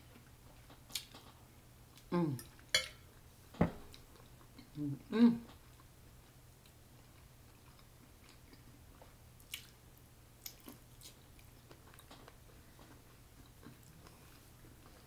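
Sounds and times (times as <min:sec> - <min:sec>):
chewing sausage mouth sounds: 0:05.5 - 0:09.8, 0:10.4 - 0:15.0.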